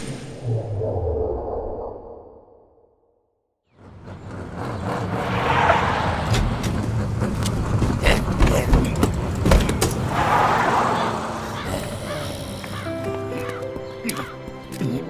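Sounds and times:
old car engine driving past: 3.7s - 13.2s.

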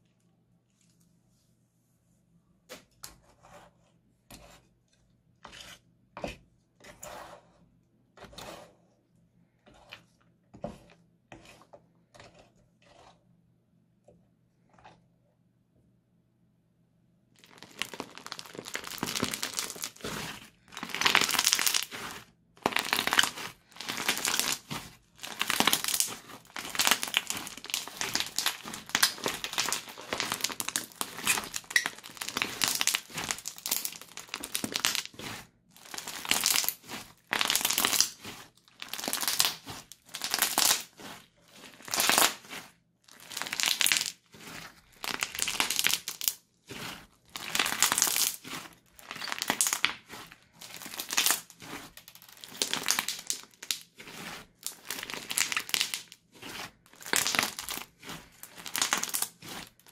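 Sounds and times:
slime crackling and popping: 17.4s - 59.9s.

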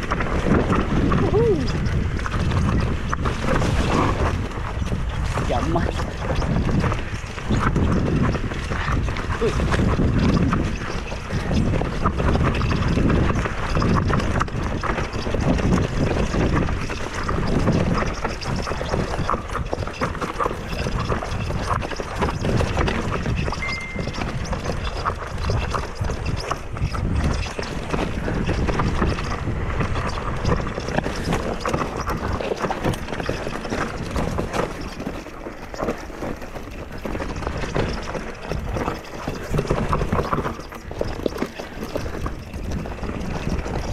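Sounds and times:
bike rattling: 0.0s - 43.9s
wind rumble on microphone: 0.0s - 43.9s
tyres crunching over stones: 16.0s - 43.9s
high squeak: 23.6s - 24.4s.

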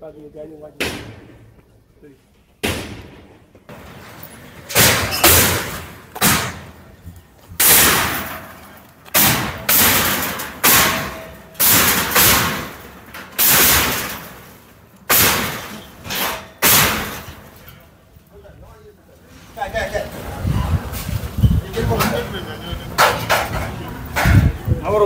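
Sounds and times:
heavy blows striking metal: 0.8s - 1.6s, 2.6s - 4.0s, 4.6s - 17.8s.

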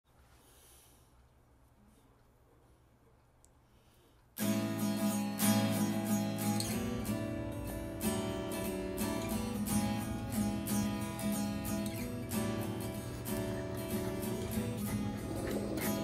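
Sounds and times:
strummed acoustic guitar: 4.4s - 16.0s.

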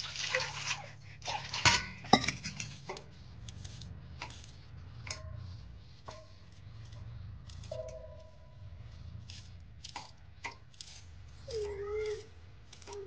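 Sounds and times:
water pouring onto steel plate: 0.0s - 2.6s
knife cutting onion: 1.9s - 13.0s.

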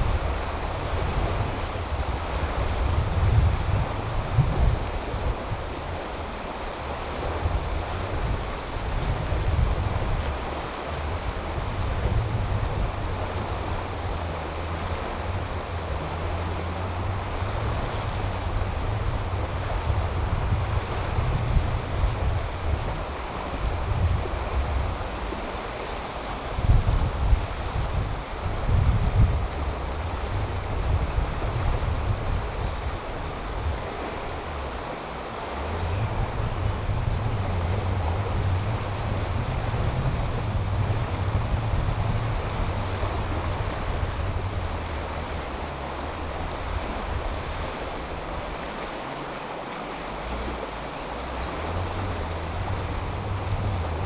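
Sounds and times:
insects trilling: 0.0s - 54.0s
water lapping at shore: 0.0s - 54.0s
wind buffeting microphone: 0.0s - 54.0s.

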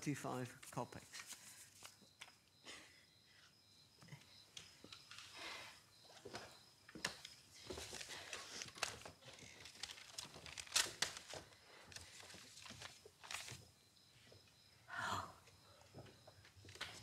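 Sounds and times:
paper rustling: 0.6s - 2.4s, 7.1s - 13.7s.

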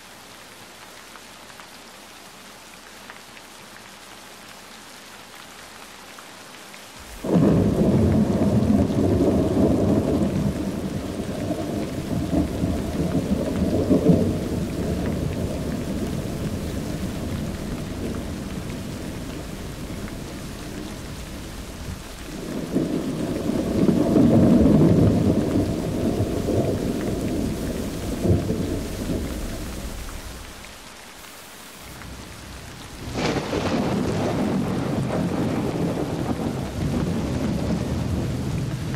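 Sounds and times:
thunder rumbling: 7.0s - 30.8s, 31.8s - 38.9s.

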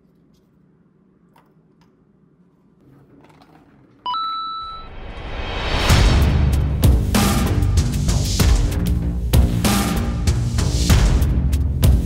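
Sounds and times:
bright ringing tone: 4.1s - 5.0s.

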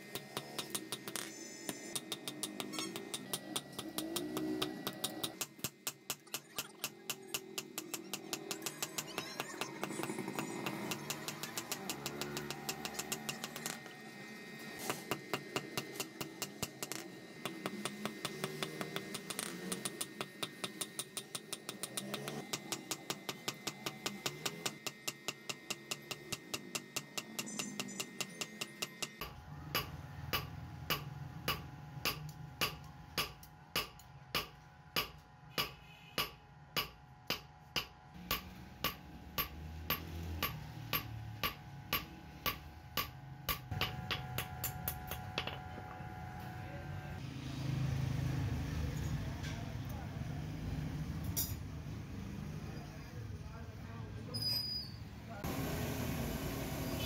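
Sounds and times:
hammer striking iron on anvil: 0.0s - 13.8s, 14.8s - 46.0s.

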